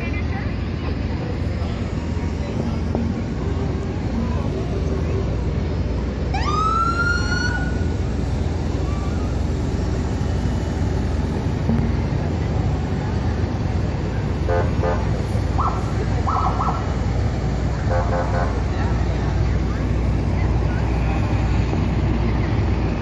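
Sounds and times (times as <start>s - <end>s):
truck engine rumble: 0.0s - 23.0s
electronic siren whoop: 6.3s - 7.9s.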